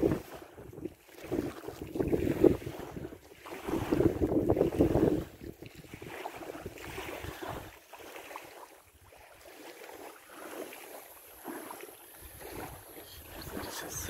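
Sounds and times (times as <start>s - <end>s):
wind noise on microphone: 0.0s - 7.8s, 12.2s - 14.0s.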